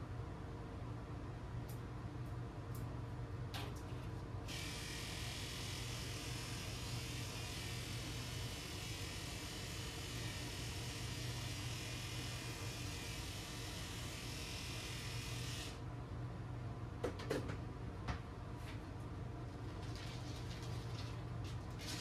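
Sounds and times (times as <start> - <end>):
steady low hum: 0.0 - 22.0
electric clippers buzzing: 4.5 - 15.8.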